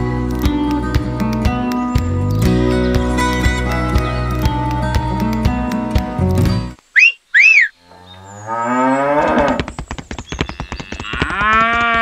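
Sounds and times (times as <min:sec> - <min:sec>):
short whistles: 0:06.9 - 0:07.8
cow mooing: 0:07.7 - 0:09.6, 0:11.0 - 0:12.0
rapid clicking: 0:09.3 - 0:12.0.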